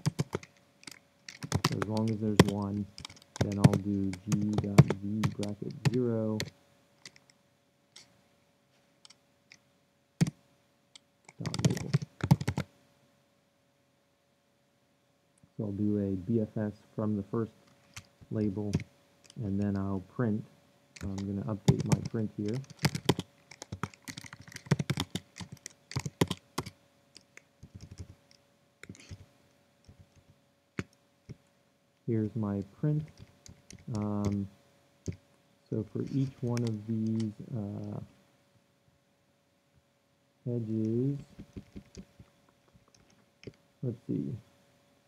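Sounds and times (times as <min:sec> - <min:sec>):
computer keyboard keystrokes: 0:00.0 - 0:07.3, 0:11.0 - 0:12.7, 0:21.0 - 0:29.2, 0:33.0 - 0:34.4, 0:36.2 - 0:37.3, 0:41.4 - 0:42.2.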